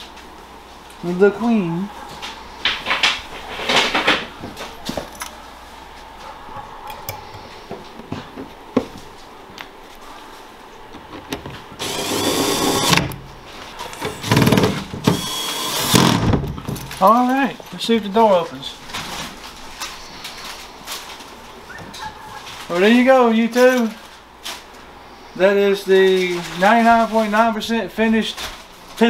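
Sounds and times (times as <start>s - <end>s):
cordless drill driving screws: 11.8s - 13.1s, 14.3s - 16.2s.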